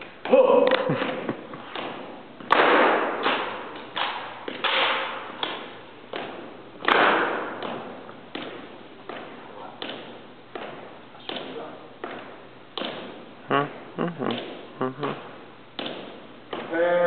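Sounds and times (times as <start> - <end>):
shoes stamping: 0.2 - 17.0
hands slapping rifles: 0.7 - 12.2.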